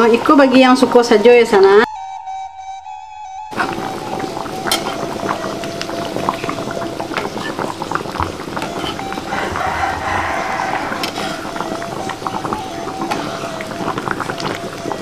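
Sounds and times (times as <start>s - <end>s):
curry bubbling in pot: 3.5s - 15.0s.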